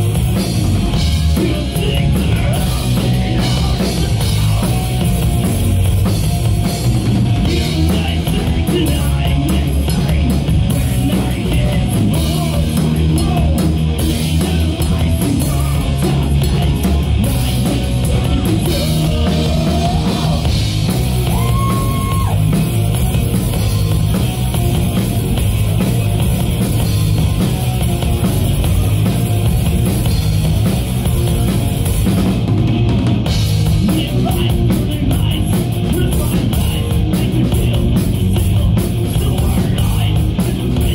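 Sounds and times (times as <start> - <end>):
bass guitar: 0.0 - 40.9
drum kit: 0.0 - 40.9
electric guitars: 0.0 - 40.9
person singing lead vocals: 1.0 - 5.0, 7.4 - 22.5, 33.7 - 40.9.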